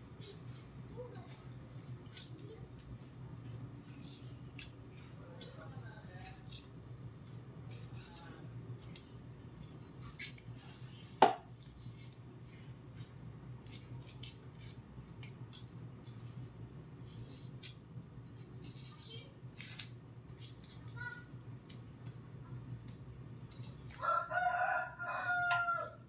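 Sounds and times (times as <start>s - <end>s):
knife scraping shallot skins: 0.1s - 2.9s, 3.8s - 12.2s, 13.6s - 21.0s, 23.4s - 24.0s.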